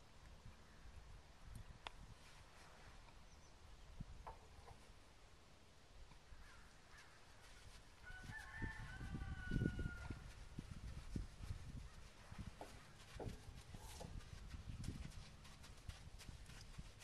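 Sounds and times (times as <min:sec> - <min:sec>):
rooster crowing: 0:08.0 - 0:10.3.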